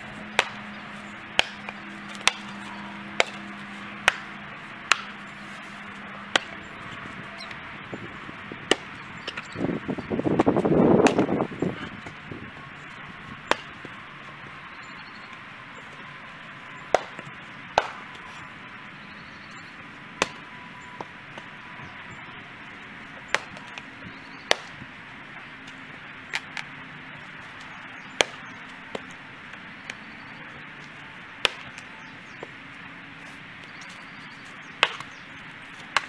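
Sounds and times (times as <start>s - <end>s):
axe chopping firewood: 0.2s - 6.7s, 8.6s - 9.7s, 10.3s - 12.2s, 13.4s - 13.9s, 16.9s - 18.2s, 20.2s - 21.5s, 23.2s - 23.9s, 24.5s - 24.8s, 26.3s - 26.7s, 27.6s - 30.1s, 31.4s - 32.5s, 34.8s - 35.2s, 35.8s - 36.0s.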